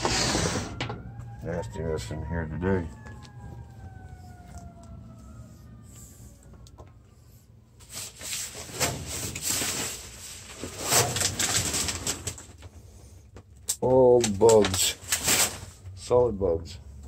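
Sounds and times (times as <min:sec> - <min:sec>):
plastic bags rustling: 0:07.8 - 0:12.8, 0:14.2 - 0:16.0.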